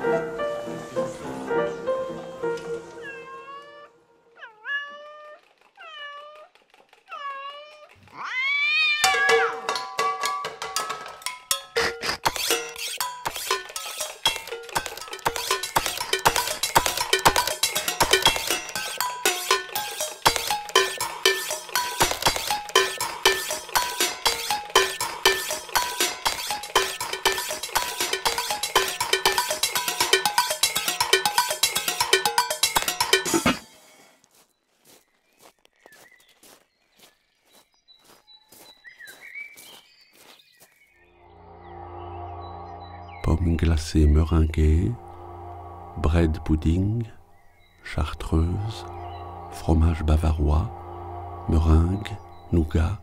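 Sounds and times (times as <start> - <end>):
cat meowing: 3.0 - 6.5, 7.1 - 9.6
metal pots and pans clanging: 8.9 - 33.7
metallic clanks with ringing tones: 9.0 - 15.8.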